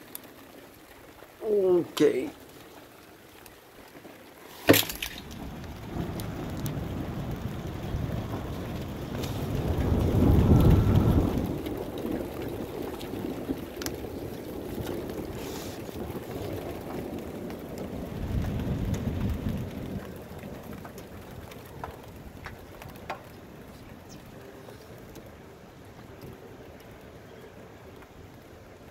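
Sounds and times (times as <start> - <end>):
steady rain: 0.0 - 28.9
low thunder rumbles: 5.0 - 28.9.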